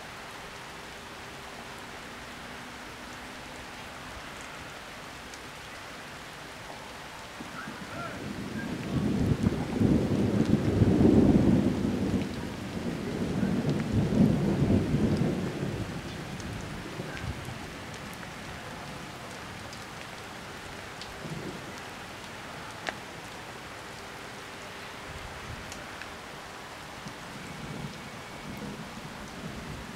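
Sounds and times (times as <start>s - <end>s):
steady rain: 0.0s - 29.9s
raindrops ticking: 3.1s - 29.9s
thunder rumbling: 7.4s - 18.1s.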